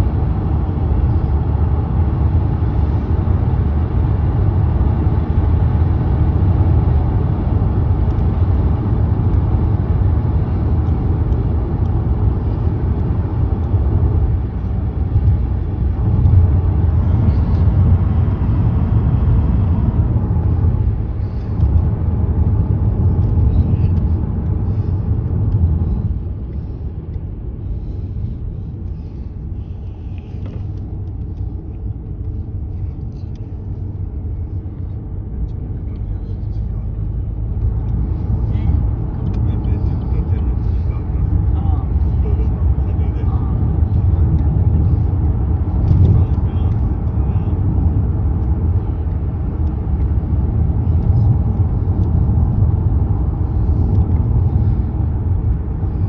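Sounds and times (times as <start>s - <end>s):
car interior road rumble: 0.0s - 56.0s.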